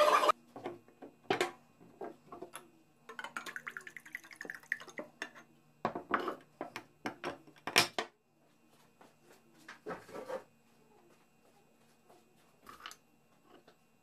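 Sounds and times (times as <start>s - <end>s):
liquid pouring into glass jar: 3.1s - 5.1s.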